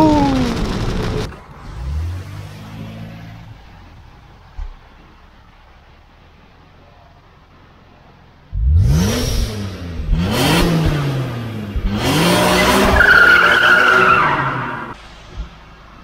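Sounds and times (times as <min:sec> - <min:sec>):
car engine revving: 0:00.0 - 0:04.0, 0:08.5 - 0:15.0.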